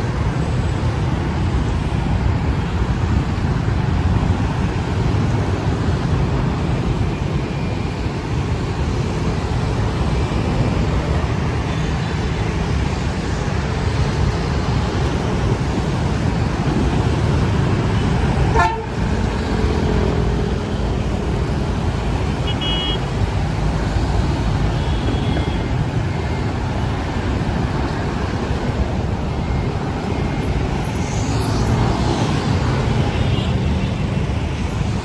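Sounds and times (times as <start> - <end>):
road traffic passing: 0.0 - 35.0
car horn beeps: 18.5 - 18.9, 22.4 - 23.1, 24.7 - 25.7.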